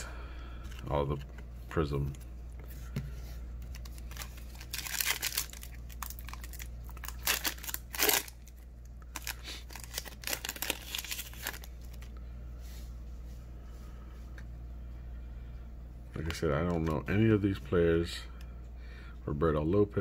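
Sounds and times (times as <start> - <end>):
foil wrapper crinkling and tearing: 3.7 - 12.1.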